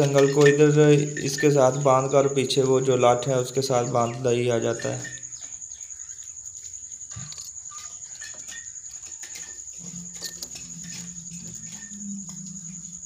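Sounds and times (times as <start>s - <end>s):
iron chain clinking: 0.0s - 1.9s
high insect trill: 0.0s - 13.0s.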